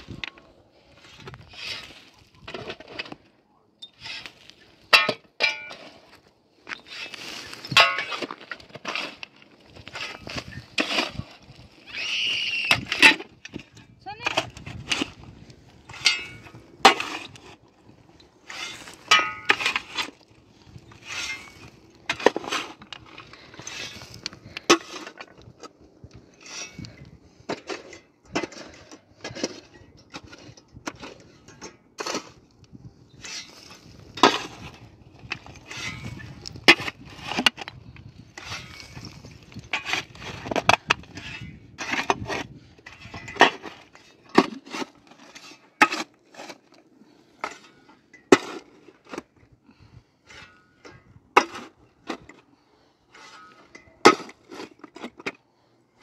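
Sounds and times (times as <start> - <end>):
shovel digging into stony soil: 0.0 - 25.6, 26.2 - 49.6, 50.2 - 52.4, 53.1 - 55.4
stones and soil rattling: 0.0 - 56.0.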